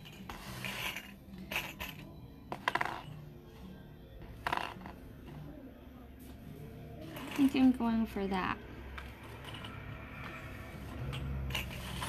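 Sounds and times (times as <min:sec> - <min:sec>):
metal pendants clinking: 0:00.0 - 0:03.2, 0:09.0 - 0:12.0.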